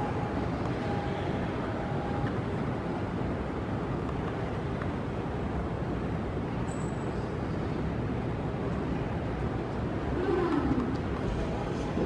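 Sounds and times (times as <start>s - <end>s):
airport terminal hall rumble: 0.0s - 12.0s.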